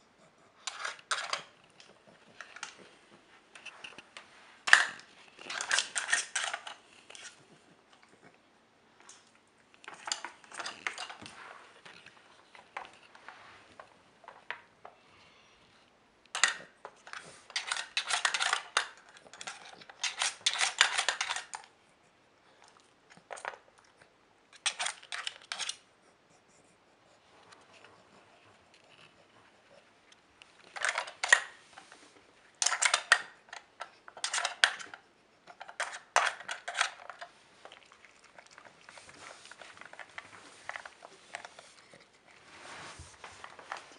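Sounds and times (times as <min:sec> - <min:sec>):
plastic pieces clicking: 0:16.3 - 0:21.7, 0:32.6 - 0:37.3.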